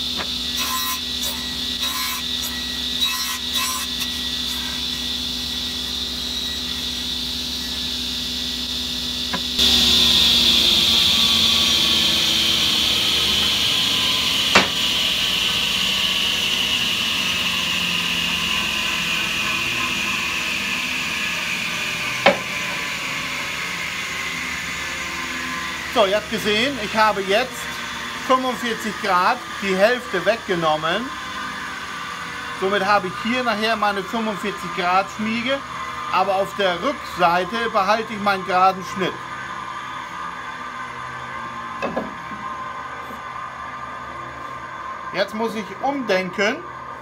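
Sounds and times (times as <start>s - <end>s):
saw blade cutting wood: 0.0s - 39.4s
table saw running: 0.0s - 47.0s
high whine dropping in pitch: 5.0s - 47.0s
sharp knocks: 14.5s - 14.8s, 22.2s - 22.5s.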